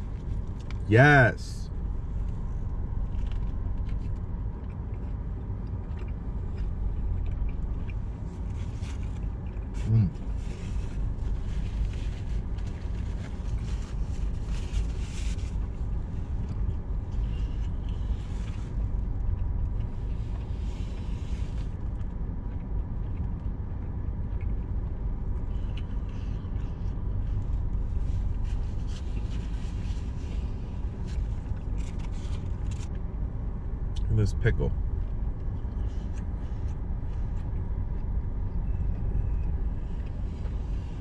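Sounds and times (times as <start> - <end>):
car engine idling rumble: 0.0 - 41.0
chewing: 2.2 - 13.7, 15.5 - 33.0.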